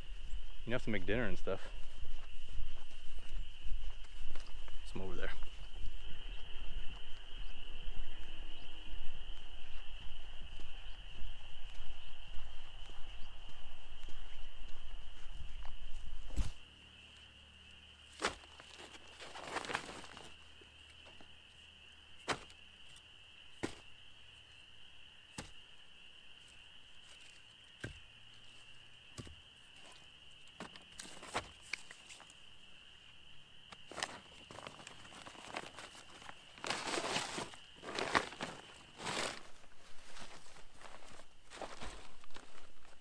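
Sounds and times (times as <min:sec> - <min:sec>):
firewood logs knocking: 0:27.8 - 0:28.0
leaf litter rustling: 0:33.9 - 0:42.9.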